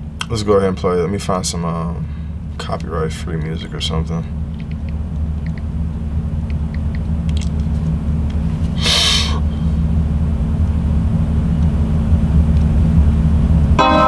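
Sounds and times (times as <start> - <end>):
steady low rumble: 0.0 - 13.8
burst of hiss: 8.8 - 9.4.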